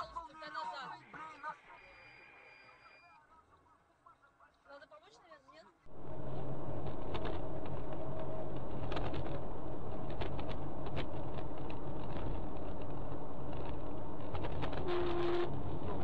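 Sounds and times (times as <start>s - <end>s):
car engine and road noise: 5.9s - 16.0s
small clicks and rattles: 6.8s - 14.8s.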